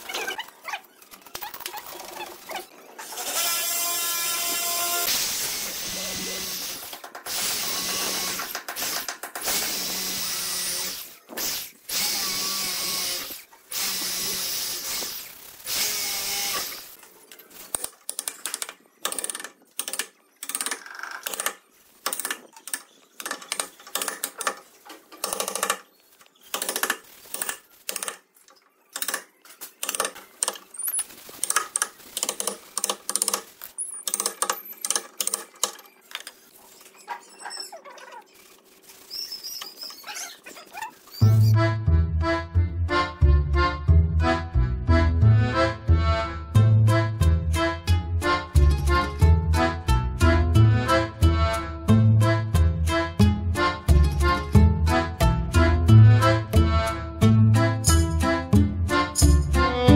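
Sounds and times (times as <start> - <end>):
electric drill boring into wood: 3.0 - 16.9.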